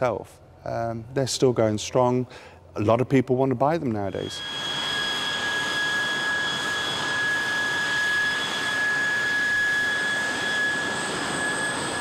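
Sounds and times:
jet engine whine: 4.0s - 12.0s.

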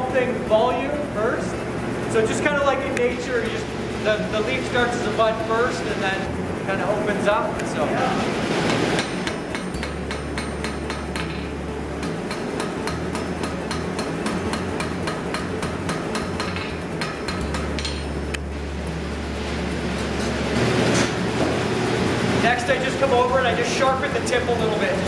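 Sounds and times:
low hum: 0.0s - 24.8s
hammer striking steel on anvil: 8.7s - 18.2s.

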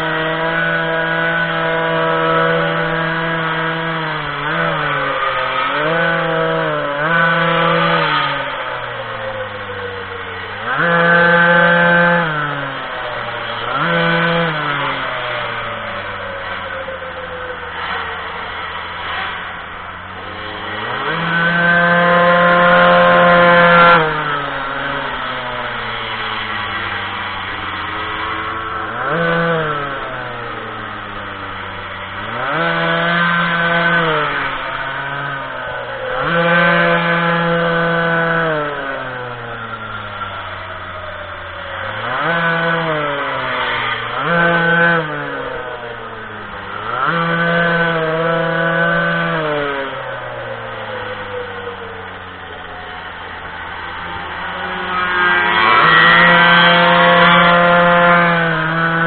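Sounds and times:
small two-stroke engine revving: 0.0s - 59.0s.

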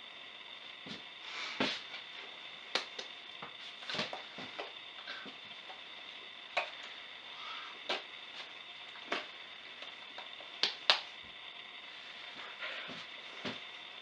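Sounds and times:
faint steady high whine: 0.0s - 14.0s
hands clapping and slapping: 2.7s - 3.1s.

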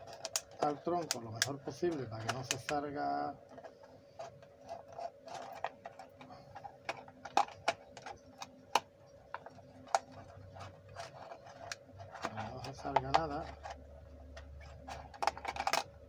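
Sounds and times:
plastic bottle crackling: 0.0s - 2.9s
faint steady hum: 0.0s - 16.0s.

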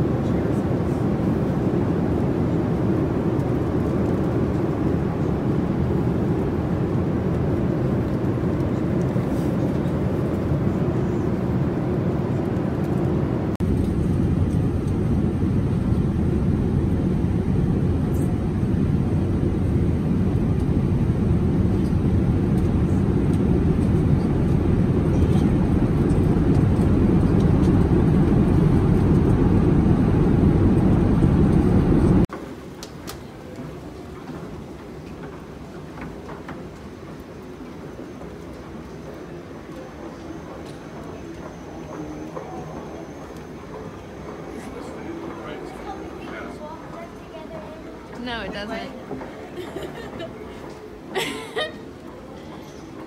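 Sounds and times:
airliner cabin engine rumble: 0.0s - 32.3s.

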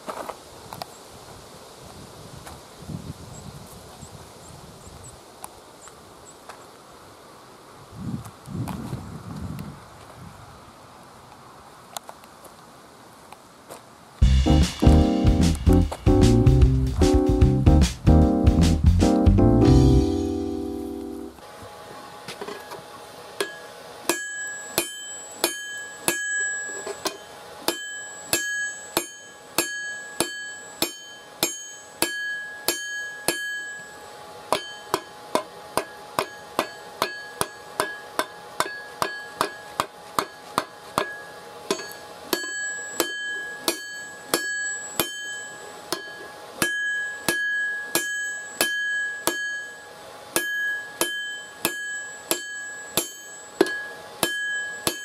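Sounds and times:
hammer striking steel on anvil: 23.4s - 55.0s.

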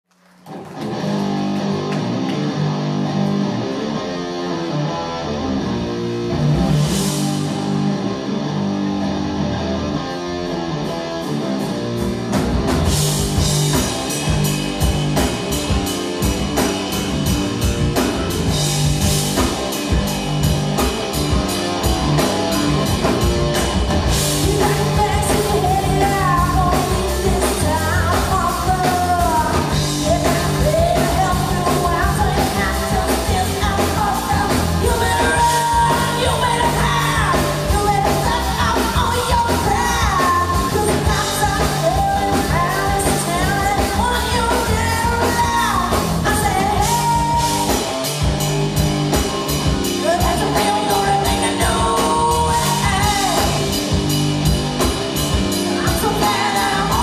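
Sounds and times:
distorted electric guitar: 0.2s - 57.0s
bass guitar: 0.5s - 57.0s
drum kit: 5.4s - 57.0s
woman singing lead vocal: 24.3s - 47.9s, 50.0s - 53.9s, 55.6s - 57.0s.

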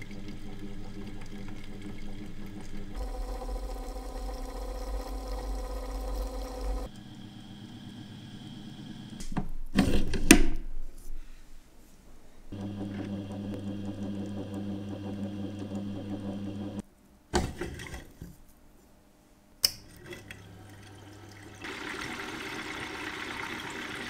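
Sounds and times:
machine motor humming: 0.0s - 9.2s, 12.5s - 16.8s.

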